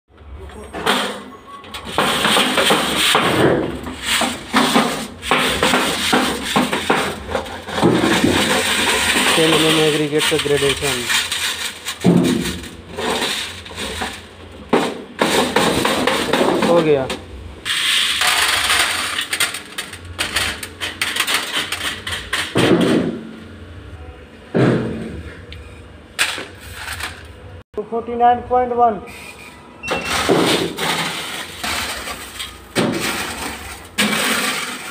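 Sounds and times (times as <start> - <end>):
gravel rattling in shaken sieves: 3.9 - 14.3, 30.5 - 34.9.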